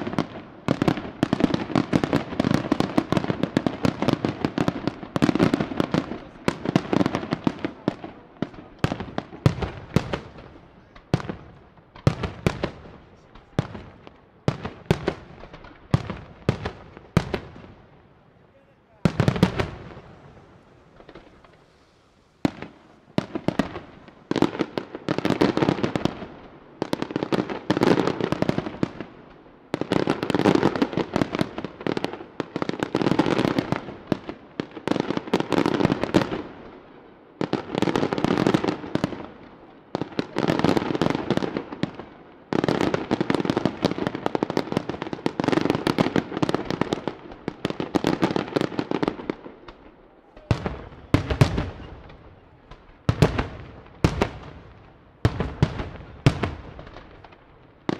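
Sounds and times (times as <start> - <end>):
crackling firework pops: 0.0 - 17.9, 19.1 - 36.5, 40.2 - 57.9
firework bang: 19.0 - 26.2.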